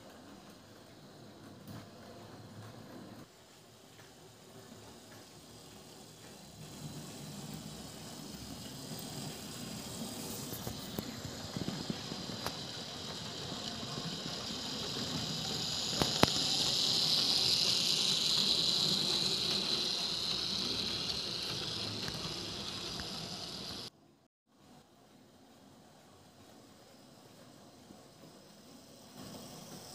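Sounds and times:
wheels hissing on rails: 0.0 - 23.9, 25.5 - 29.9
model train motor whir: 3.9 - 23.9, 28.1 - 29.9
light wheel clicks: 10.7 - 23.8.

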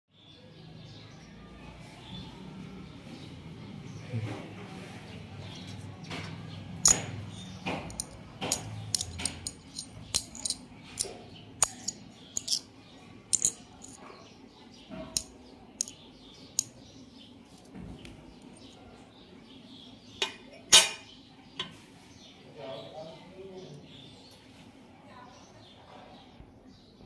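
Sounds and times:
coin knocking on stone floor: 6.8 - 7.1, 7.7 - 10.6, 11.6 - 12.6, 13.3 - 14.0
metal clicking against coin: 6.8 - 7.1, 7.9 - 12.6, 13.3 - 14.0, 15.2 - 16.0.

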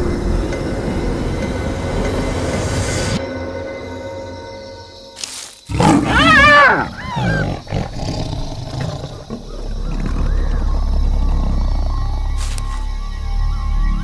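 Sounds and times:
hyena shrill cries: 5.7 - 7.8
lion growling: 5.7 - 12.7.

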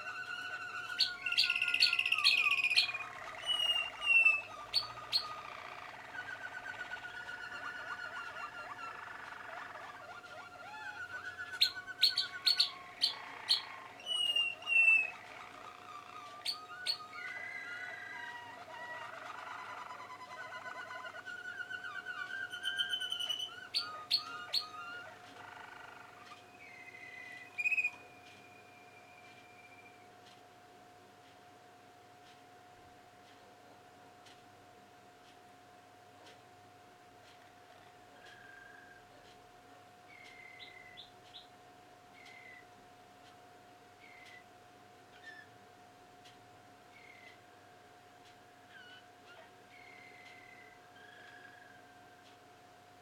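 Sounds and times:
canaries singing: 0.0 - 30.1, 40.1 - 41.6, 45.1 - 45.6, 46.9 - 47.5, 48.4 - 52.4.

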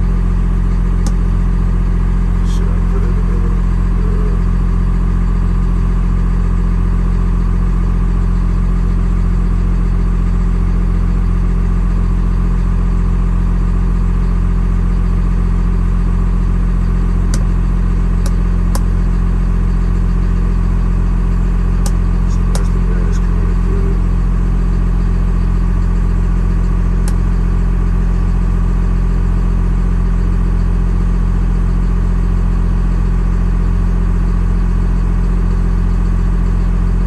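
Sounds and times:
truck engine idling: 0.0 - 34.4
sharp clicks: 21.9 - 22.9.

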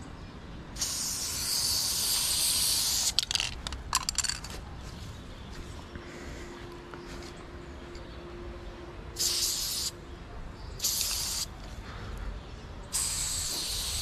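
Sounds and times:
spray paint can hissing: 0.8 - 4.4, 9.2 - 10.0, 10.8 - 11.6, 12.9 - 14.0.

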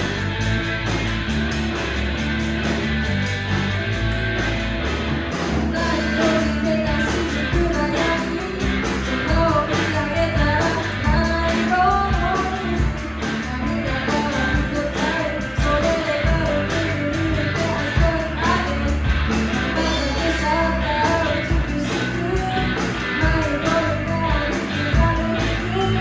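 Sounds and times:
rock band playing: 0.0 - 26.0
woman singing: 5.7 - 26.0.

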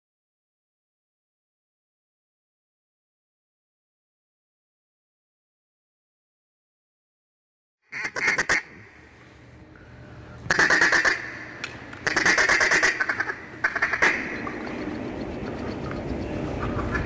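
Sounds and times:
duck quacking: 7.9 - 8.9, 10.5 - 17.0.

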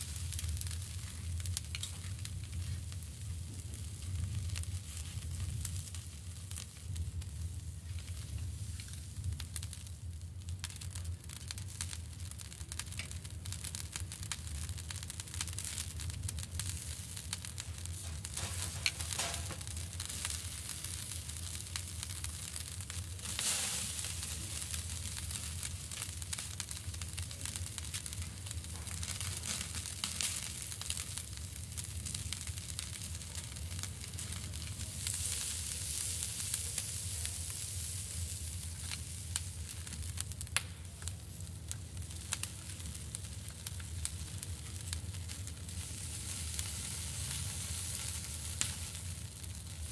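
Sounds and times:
sausage sizzling on a grill: 0.0 - 49.9
fine crackling: 15.4 - 49.1.

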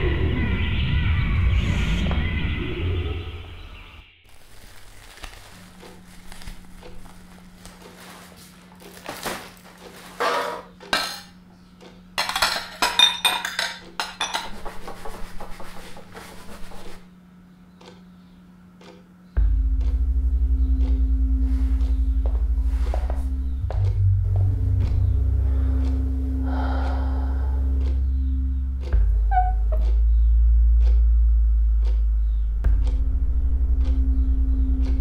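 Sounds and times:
plates and cutlery clattering: 9.9 - 11.4, 12.2 - 15.2
faint low hum: 19.2 - 35.0.

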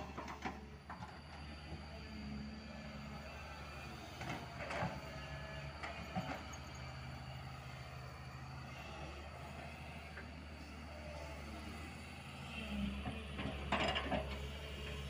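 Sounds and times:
excavator diesel engine running: 0.0 - 15.0.

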